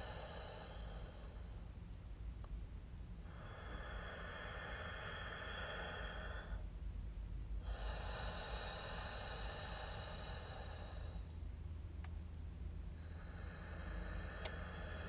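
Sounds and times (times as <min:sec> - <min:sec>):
slow breathing through the nose: 0:00.0 - 0:01.8, 0:03.2 - 0:06.8, 0:07.6 - 0:11.4, 0:12.9 - 0:15.0.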